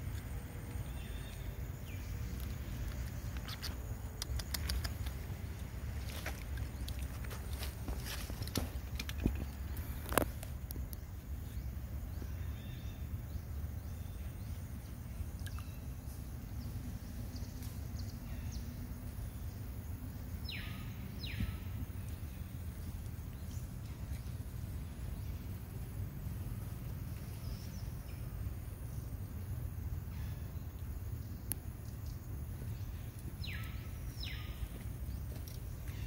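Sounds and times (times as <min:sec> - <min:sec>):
low outdoor rumble: 0:00.0 - 0:36.0
faint ticks: 0:02.4 - 0:05.4, 0:30.7 - 0:31.7.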